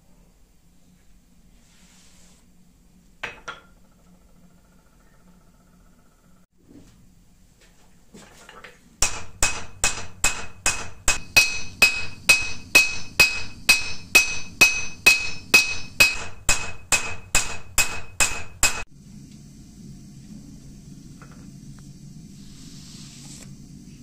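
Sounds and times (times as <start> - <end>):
hammer ringing on anvil: 9.0 - 18.8.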